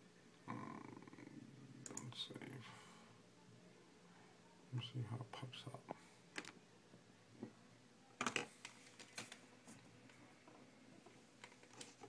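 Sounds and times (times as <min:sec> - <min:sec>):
faint clicks and taps: 0:08.2 - 0:12.0.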